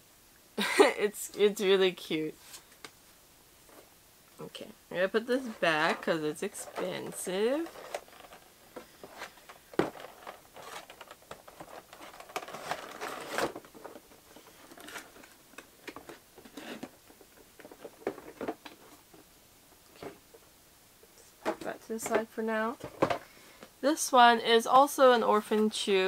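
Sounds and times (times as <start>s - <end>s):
plastic packaging crinkling: 5.4s - 19.2s.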